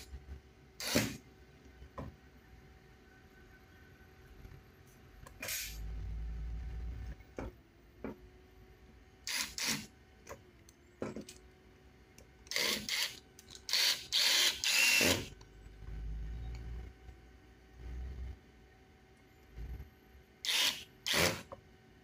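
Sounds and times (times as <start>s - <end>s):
electric screwdriver whirring: 0.8s - 1.2s, 9.3s - 9.9s, 12.5s - 15.4s, 20.4s - 21.5s.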